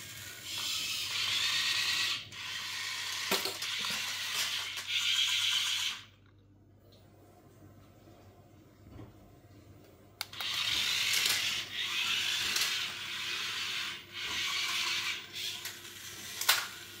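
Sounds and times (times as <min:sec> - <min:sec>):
toy motors whirring and grinding: 0:00.0 - 0:06.2, 0:10.2 - 0:17.0.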